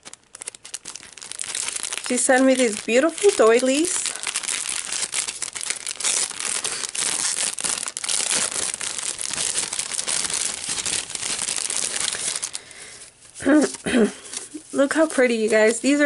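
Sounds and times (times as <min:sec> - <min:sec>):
cellophane bag crinkling: 0:00.0 - 0:16.0.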